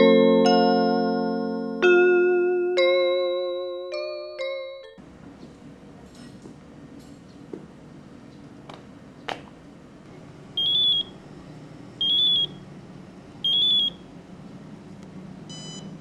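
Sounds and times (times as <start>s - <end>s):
mobile phone ringing beeps: 10.6s - 11.2s, 12.0s - 12.6s, 13.4s - 14.0s, 15.5s - 15.9s
short phone beep: 15.5s - 15.9s.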